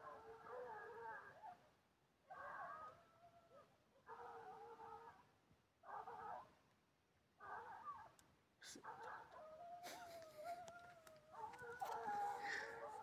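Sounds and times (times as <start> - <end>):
faint hounds baying: 0.0 - 1.6, 2.3 - 5.2, 7.4 - 13.0.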